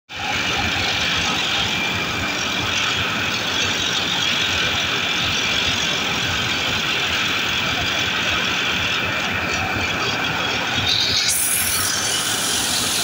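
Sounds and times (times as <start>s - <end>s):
engine-room machinery noise: 0.1s - 13.0s
air tool scouring steel: 11.1s - 13.0s.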